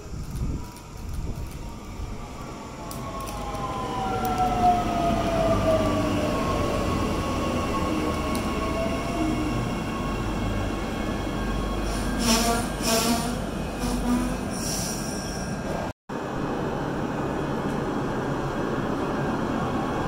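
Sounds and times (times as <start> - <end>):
wheels rumbling on rail: 0.0 - 20.0
train brakes squealing: 11.1 - 15.7.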